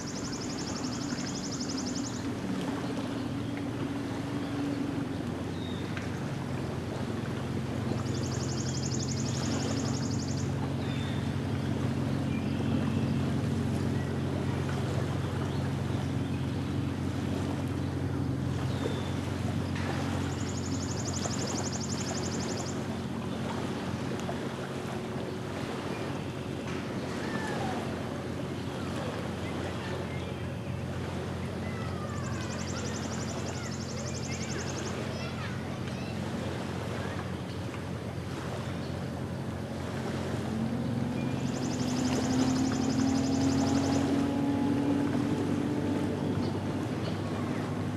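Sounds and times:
bird chirps: 0:00.0 - 0:02.3, 0:08.1 - 0:11.3, 0:20.3 - 0:22.8, 0:32.2 - 0:35.4, 0:41.2 - 0:44.2
low engine drone: 0:00.0 - 0:47.9
water noise: 0:00.0 - 0:47.9
waves lapping on sand: 0:00.0 - 0:47.9
wind: 0:00.0 - 0:47.9
low drone: 0:37.5 - 0:47.9.

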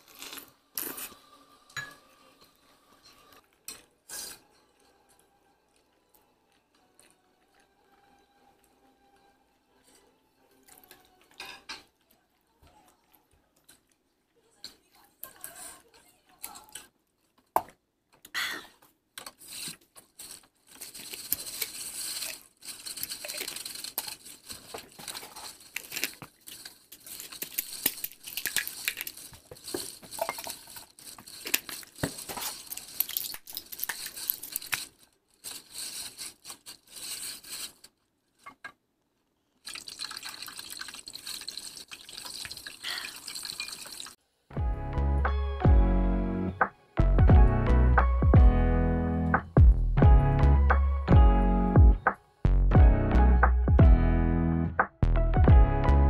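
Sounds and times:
water running and splashing: 0:39.6 - 0:44.2.

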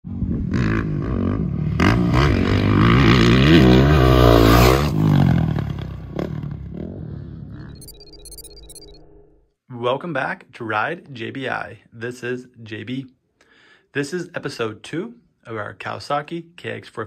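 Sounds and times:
dirt bike engine revving: 0:00.4 - 0:07.2.

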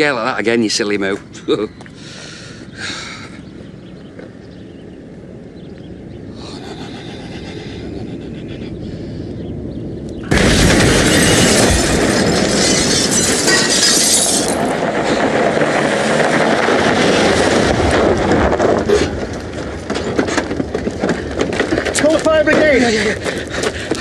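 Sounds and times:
explosion blast and rumble: 0:10.3 - 0:22.0
debris crackles and clatter: 0:10.3 - 0:24.0.

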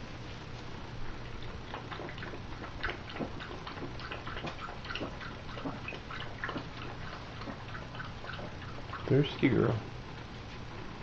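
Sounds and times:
dog lapping water from a bowl: 0:01.1 - 0:09.8.

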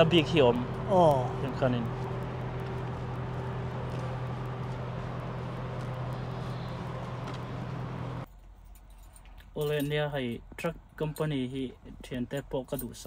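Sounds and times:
diesel truck engines idling: 0:00.0 - 0:08.3
outdoor traffic noise: 0:00.0 - 0:13.0.

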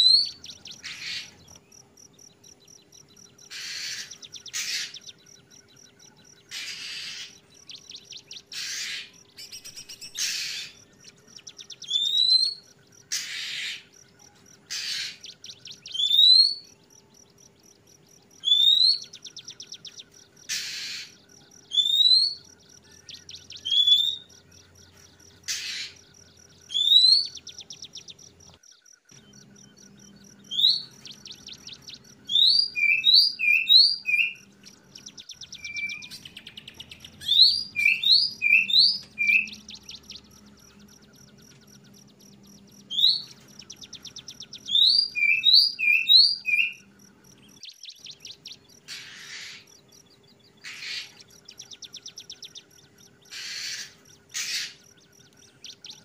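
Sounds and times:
bird fast ticking calls: 0:00.0 - 0:56.0
bird rasping bursts: 0:03.5 - 0:05.0, 0:08.5 - 0:09.2, 0:48.8 - 0:49.7, 0:53.3 - 0:54.8
bird whistled notes: 0:30.5 - 0:34.5, 0:35.3 - 0:40.0, 0:42.9 - 0:46.8.

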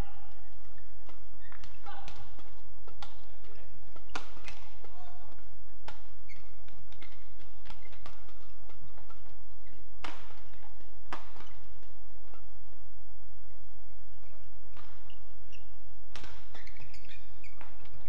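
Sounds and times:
rackets striking shuttlecock: 0:00.2 - 0:12.5, 0:16.1 - 0:18.0.

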